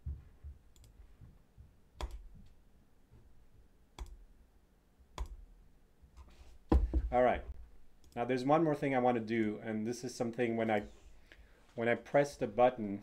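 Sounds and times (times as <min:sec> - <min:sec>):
computer mouse clicks: 0:02.0 - 0:02.3, 0:04.0 - 0:04.2, 0:05.2 - 0:05.4.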